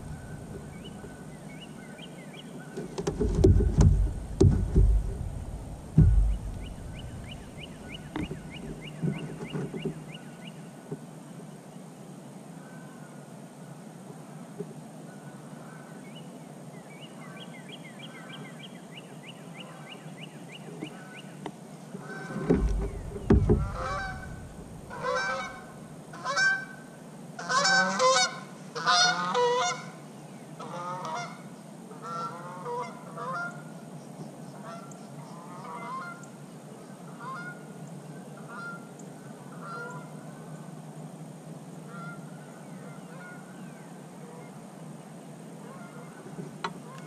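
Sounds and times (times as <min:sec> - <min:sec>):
geese honking: 0:00.0 - 0:01.8, 0:22.0 - 0:26.8, 0:27.4 - 0:30.0, 0:30.6 - 0:33.7, 0:34.6 - 0:36.3, 0:37.1 - 0:37.6, 0:38.4 - 0:38.9, 0:39.5 - 0:40.2, 0:41.9 - 0:43.5, 0:45.6 - 0:47.0
heavy low thumps: 0:03.1 - 0:08.8, 0:22.5 - 0:25.6.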